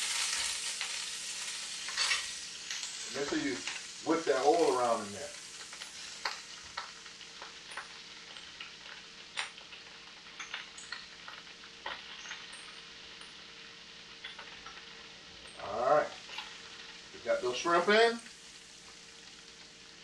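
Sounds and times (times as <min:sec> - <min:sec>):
faint steady hum: 0:00.0 - 0:20.0
hot fat sizzling in a pan: 0:00.0 - 0:20.0
fat popping and crackling: 0:05.6 - 0:13.4.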